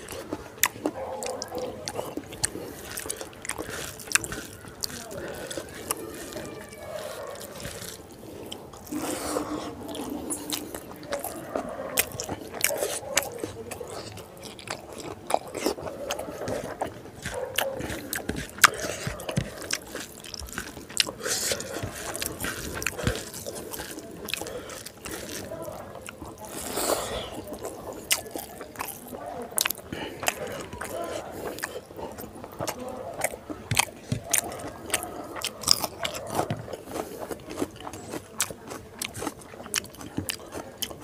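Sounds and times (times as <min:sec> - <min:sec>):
fingers squishing rice on plate: 0:00.0 - 0:41.0
person chewing with wet smacks: 0:00.0 - 0:41.0.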